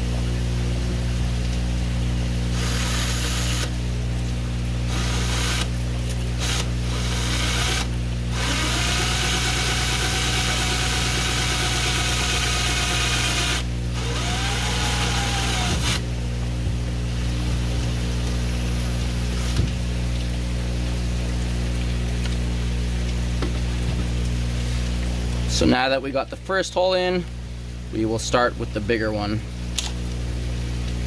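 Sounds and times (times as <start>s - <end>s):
cordless drill motor whine: 2.5s - 3.7s, 4.9s - 5.7s, 6.4s - 16.0s.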